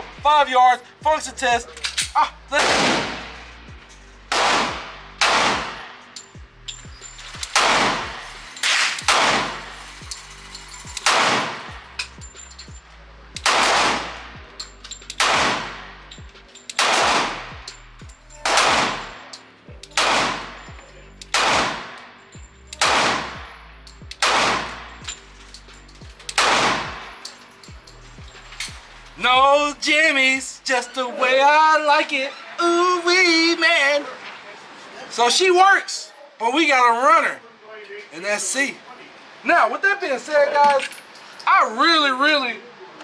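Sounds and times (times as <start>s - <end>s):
pistol shots echoing indoors: 2.6s - 3.4s, 4.3s - 6.0s, 7.5s - 9.7s, 11.0s - 11.7s, 13.4s - 14.2s, 15.1s - 16.0s, 16.7s - 17.5s, 18.4s - 19.2s, 19.9s - 20.6s, 21.3s - 22.0s, 22.8s - 23.5s, 24.2s - 24.9s, 26.3s - 27.1s.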